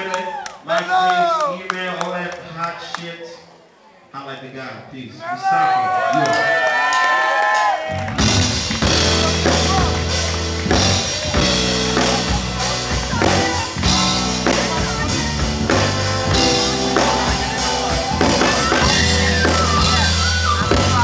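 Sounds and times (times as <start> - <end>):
loud music with drum beat: 8.0 - 21.0.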